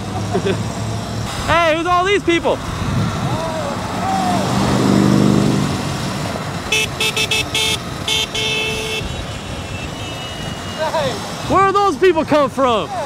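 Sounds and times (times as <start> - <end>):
passing engine: 0.0 - 11.8
street traffic: 0.0 - 13.0
vehicle horn honking: 6.7 - 11.1.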